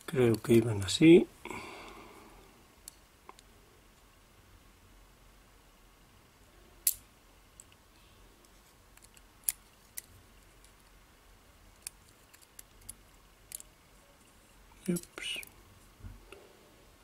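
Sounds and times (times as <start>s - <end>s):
small metal parts clicking: 11.8s - 13.7s.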